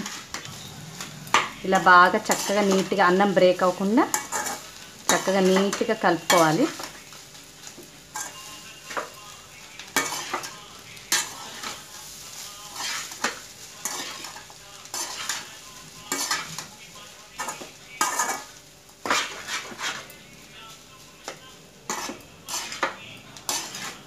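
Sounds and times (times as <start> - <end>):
metal spatula scraping a pan: 0.0 - 7.0, 7.6 - 9.1, 9.9 - 16.8, 17.4 - 20.2, 21.9 - 24.0
frying sizzle: 0.0 - 24.0.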